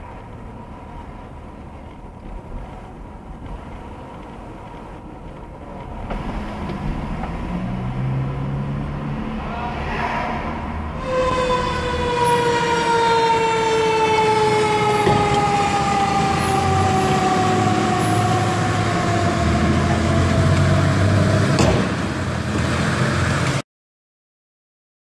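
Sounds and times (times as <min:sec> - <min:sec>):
truck engine rumble: 0:00.0 - 0:23.6
fire truck siren winding down: 0:07.5 - 0:23.6.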